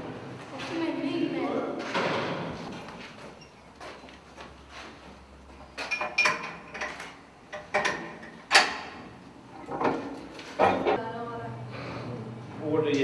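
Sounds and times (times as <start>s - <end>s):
metal door handle clanks: 5.8s - 9.0s.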